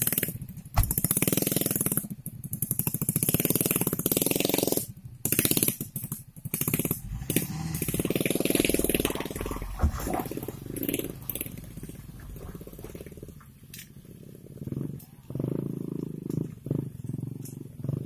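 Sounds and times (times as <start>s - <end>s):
truck engine revving hard: 6.5s - 13.4s.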